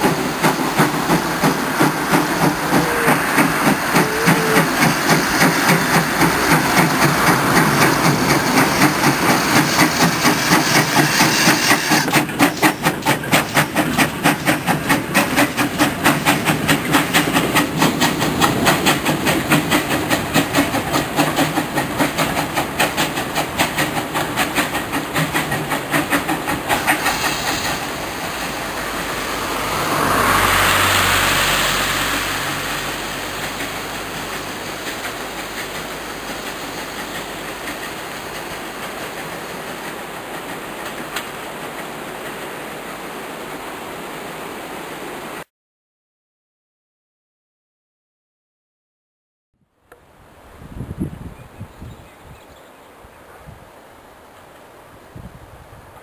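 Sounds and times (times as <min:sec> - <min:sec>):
steam locomotive running: 0:00.0 - 0:44.1
steam hiss: 0:00.0 - 0:44.8.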